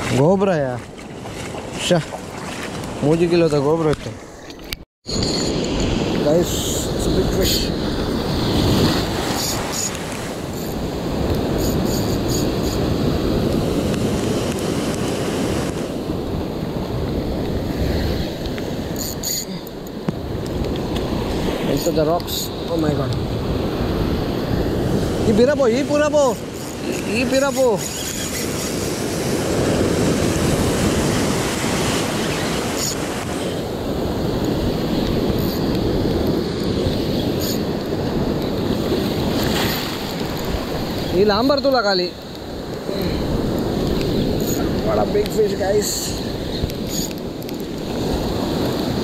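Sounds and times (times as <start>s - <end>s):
surf washing over rocks: 0.0s - 4.4s, 5.4s - 49.0s
wind buffeting microphone: 5.0s - 49.0s.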